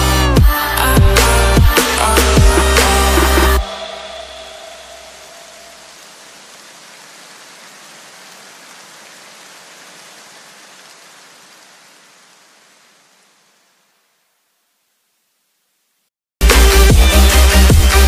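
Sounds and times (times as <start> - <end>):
electronic backing music: 0.0 - 5.0, 16.4 - 18.0.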